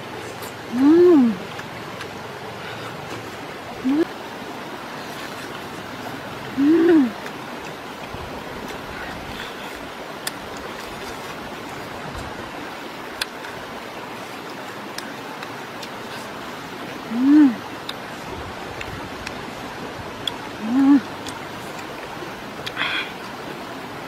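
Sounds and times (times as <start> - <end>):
woman humming: 0.6 - 1.5, 3.8 - 4.2, 6.5 - 7.2, 17.0 - 17.7, 20.6 - 21.2.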